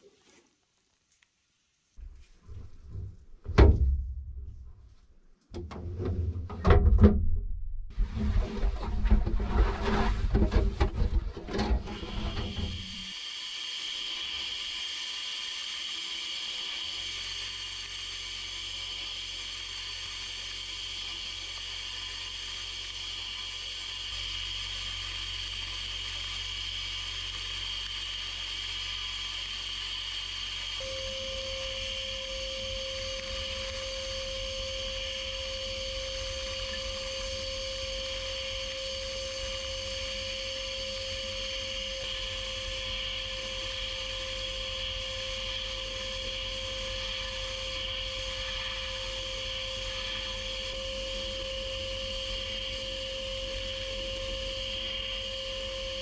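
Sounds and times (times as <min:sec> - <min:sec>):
constant hum: 0:00.0 - 0:13.2, 0:17.1 - 0:56.0
sandblast gun hissing: 0:12.0 - 0:56.0
steady mid-pitched tone: 0:30.8 - 0:52.0.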